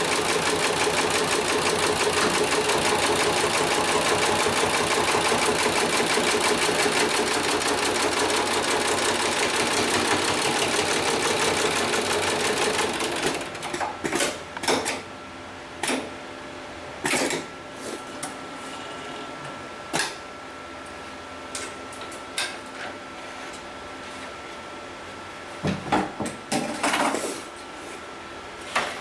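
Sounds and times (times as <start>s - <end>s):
sewing machine stitching: 0.0s - 13.8s.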